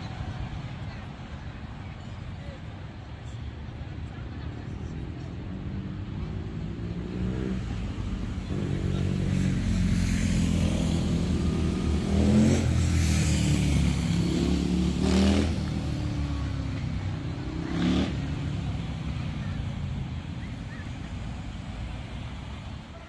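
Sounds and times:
vehicles accelerating past: 0:04.9 - 0:23.0.

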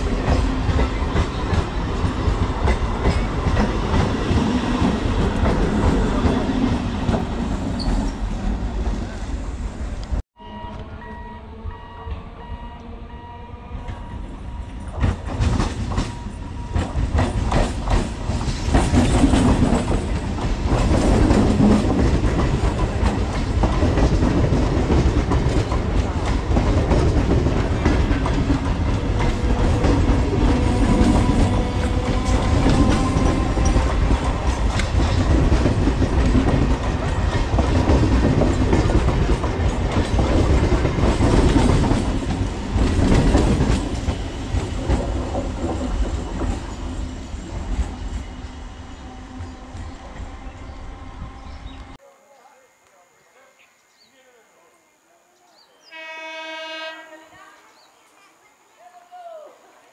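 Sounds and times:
train wheels clattering over rail joints: 0:00.0 - 0:08.2, 0:14.8 - 0:48.4
train rumble: 0:00.0 - 0:52.0.

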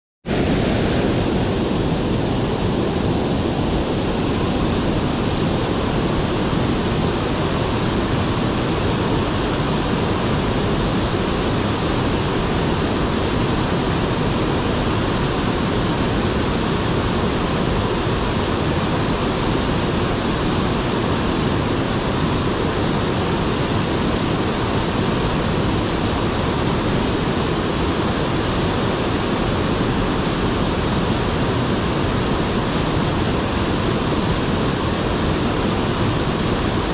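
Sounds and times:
waterfall rushing: 0:00.3 - 0:36.9.

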